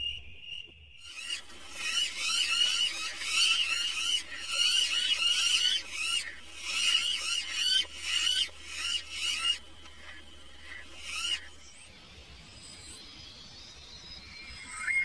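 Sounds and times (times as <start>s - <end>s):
rapid high animal chirping: 1.0s - 11.6s.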